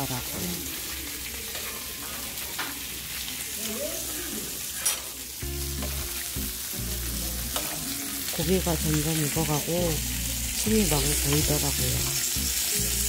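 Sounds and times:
meat sizzling on a griddle: 0.0s - 13.0s.

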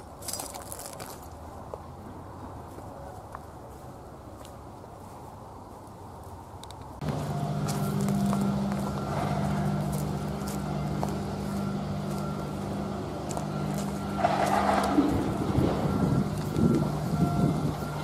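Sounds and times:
diesel locomotive engine running: 6.9s - 18.0s.

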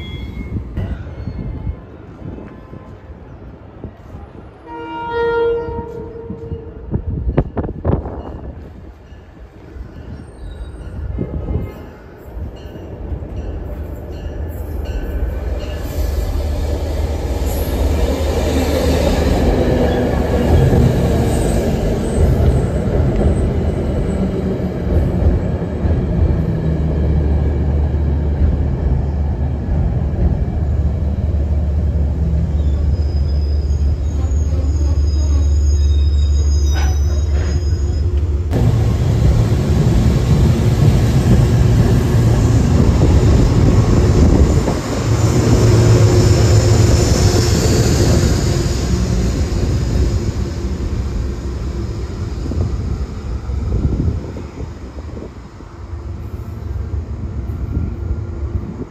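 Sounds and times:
train wheels rumbling on rails: 5.7s - 58.9s
high wheel squeals: 32.5s - 38.3s.

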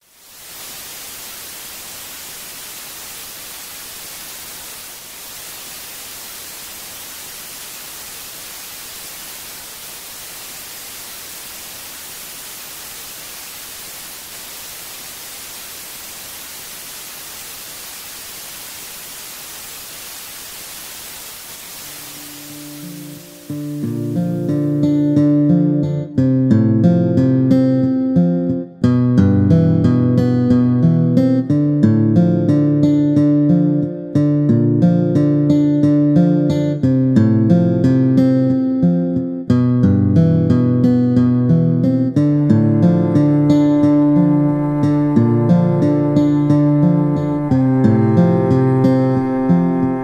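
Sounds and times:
television static hiss: 0.0s - 26.0s, 42.0s - 50.0s.

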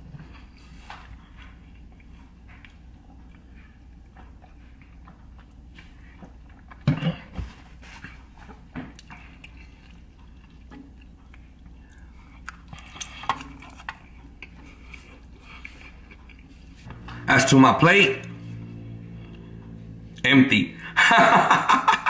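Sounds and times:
chewing and biting food: 0.0s - 17.2s.

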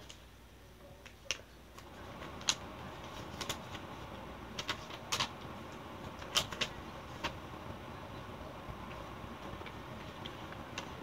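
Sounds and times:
steady low hiss: 0.0s - 11.0s
paper crinkling: 1.8s - 7.4s.

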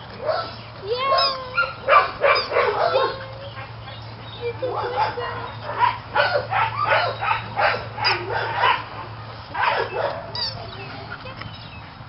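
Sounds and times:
dog yipping and whining: 1.0s - 3.3s, 9.6s - 10.8s.

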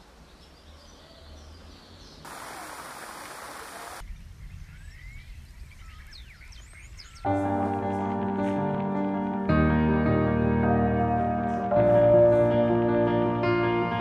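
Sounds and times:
birds chirping: 0.0s - 7.7s
loud even hiss: 2.2s - 4.0s.

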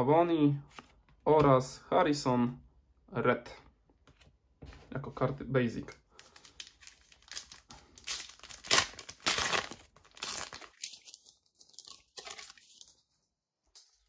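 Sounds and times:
card packet wrapper tearing: 6.2s - 13.0s.

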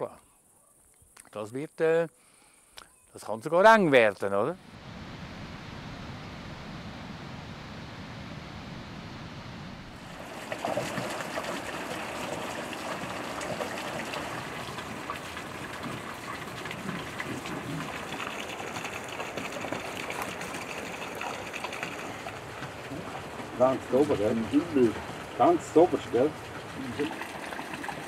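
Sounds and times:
running water: 10.0s - 28.0s.

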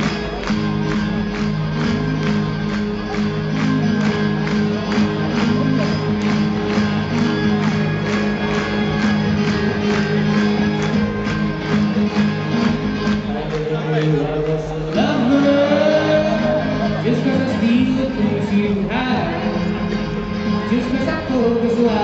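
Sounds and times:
acoustic guitar strummed fast: 0.0s - 14.1s.

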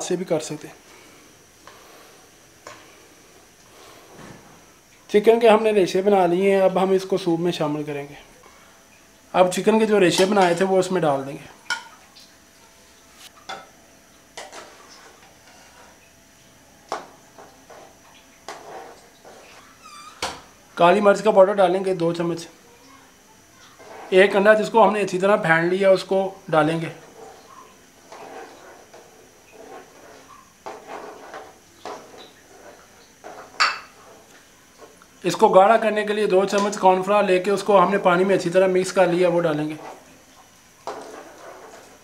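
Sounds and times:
metal spatula stirring soup: 17.4s - 19.7s, 23.7s - 24.2s, 27.0s - 35.0s
clinks and knocks against pot: 33.3s - 34.0s.

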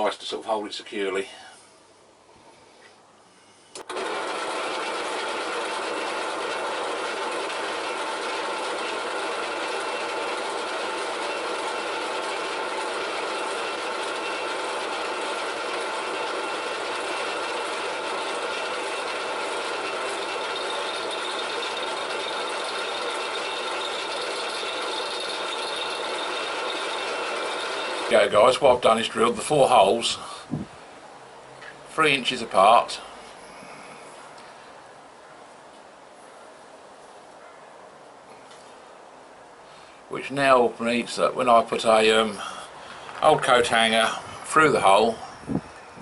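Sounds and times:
pillar drill drilling metal: 3.8s - 28.8s.

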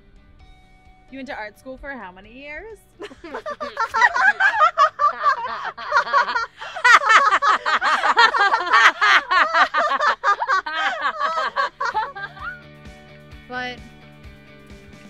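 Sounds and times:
women laughing: 3.0s - 12.6s.

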